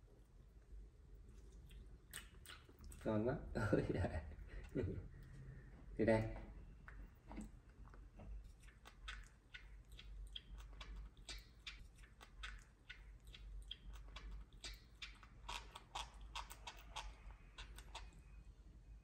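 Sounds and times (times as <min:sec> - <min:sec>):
monkey chewing and lip-smacking: 0:00.0 - 0:03.2, 0:06.7 - 0:18.4.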